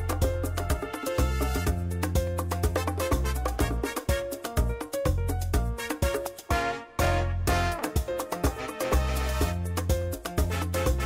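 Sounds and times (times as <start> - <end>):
music with percussion and bass: 0.0 - 11.0.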